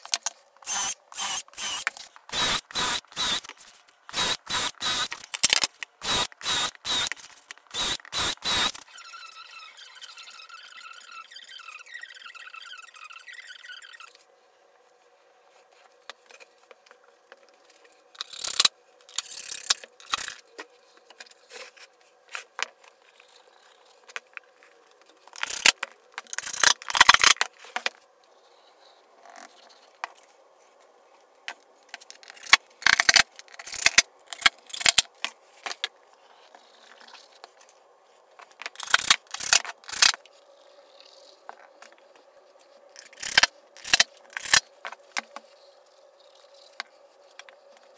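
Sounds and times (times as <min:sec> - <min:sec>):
faint steady hum: 0:00.0 - 0:47.9.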